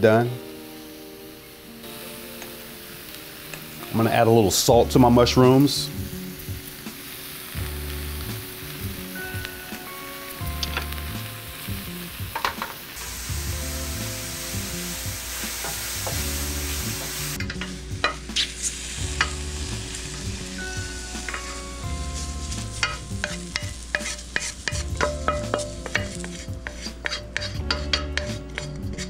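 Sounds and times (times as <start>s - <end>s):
mushrooms sizzling in a pan: 0.0s - 29.0s
wooden spoon scraping metal pan: 22.2s - 29.0s.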